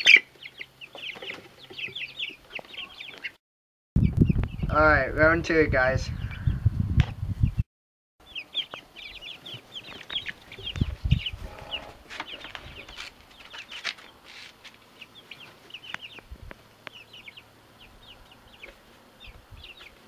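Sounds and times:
chicks peeping: 0.0 - 3.4, 4.0 - 4.8, 8.2 - 20.0.

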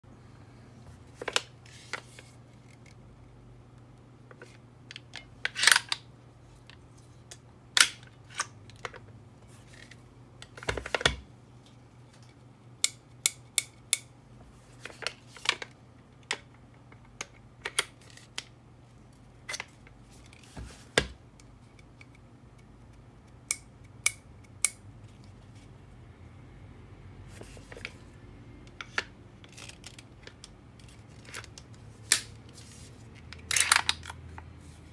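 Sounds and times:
faint hum: 0.0 - 34.9
metal and plastic parts clicking: 28.7 - 32.4, 33.2 - 34.5.

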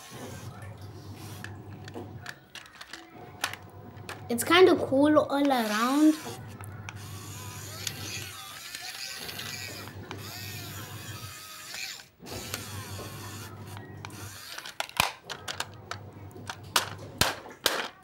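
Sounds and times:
toy motor and gears whirring: 0.0 - 4.2, 5.3 - 15.8
plastic clicks and knocks: 1.4 - 4.3, 13.8 - 18.0.

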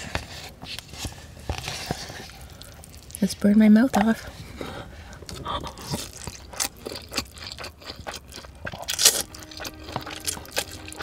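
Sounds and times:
wet chewing and sucking: 0.0 - 3.3, 4.2 - 11.0.

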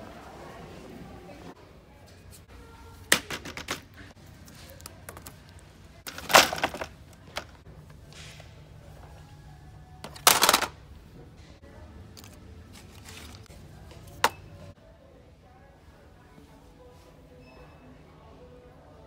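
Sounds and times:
faint music: 0.0 - 19.0
items clattering into plastic basket: 3.1 - 4.1, 6.1 - 7.6, 10.0 - 10.8.

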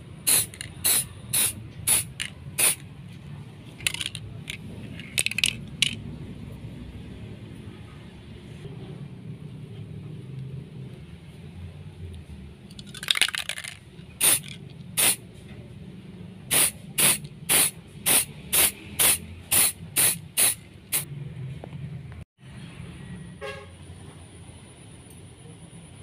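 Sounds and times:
spray can hissing: 0.2 - 2.8, 14.2 - 15.2, 16.5 - 21.0.

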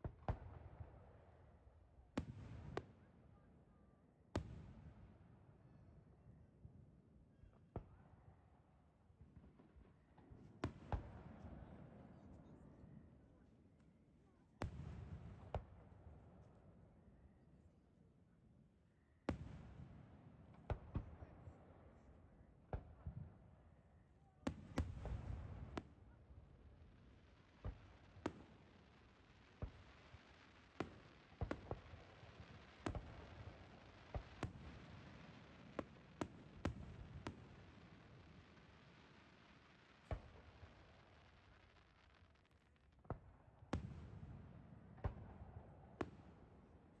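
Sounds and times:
fireworks bangs: 27.0 - 41.9.

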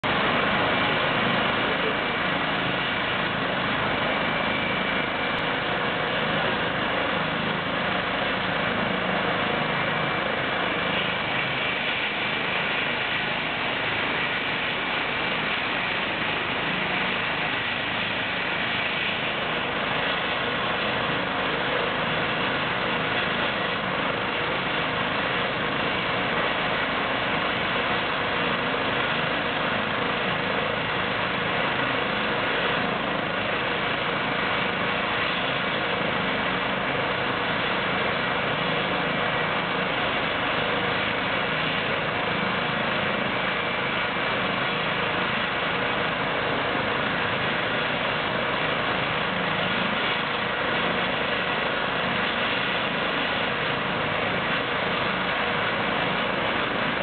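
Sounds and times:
helicopter turbine whine: 0.0 - 57.0
helicopter rotor turning: 0.1 - 26.4.

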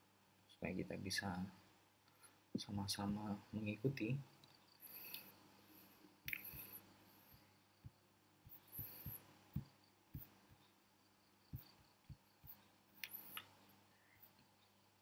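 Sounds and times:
sharp click: 6.3 - 6.8, 12.4 - 13.5.

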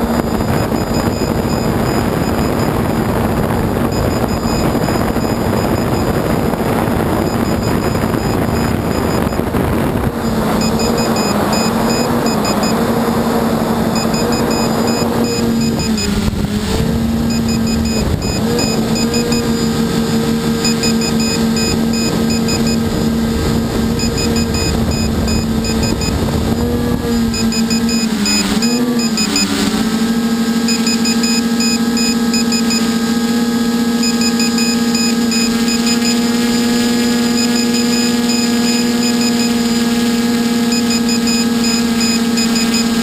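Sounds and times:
wind on microphone: 0.0 - 30.4
drone motors droning: 0.0 - 43.0.

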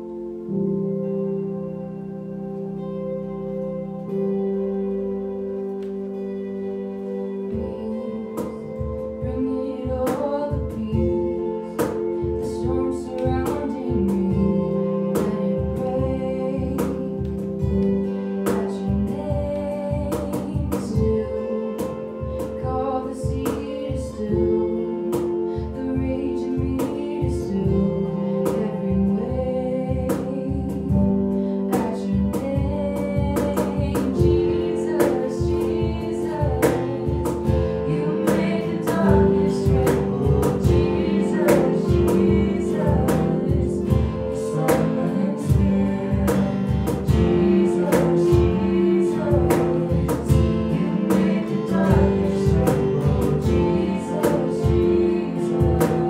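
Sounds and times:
band playing strummed guitars: 2.2 - 56.0.

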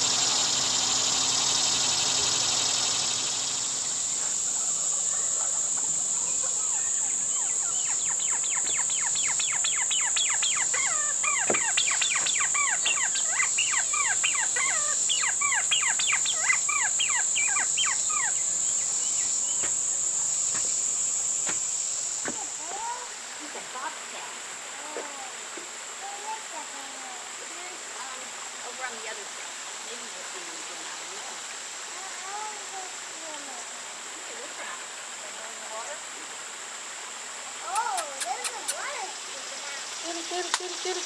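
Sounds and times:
bird calling downward notes: 0.0 - 18.5
insects droning: 0.0 - 41.0.

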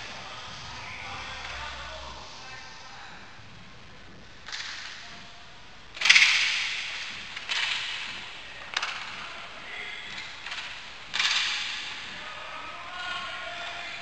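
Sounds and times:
hockey stick hitting puck: 6.0 - 9.3, 10.1 - 12.3.

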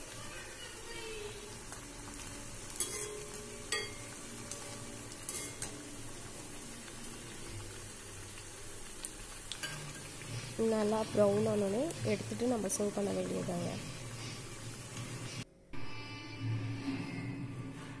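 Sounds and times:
food deep-frying in oil: 0.0 - 15.4
ladle tapping and scraping pan: 2.8 - 4.0.

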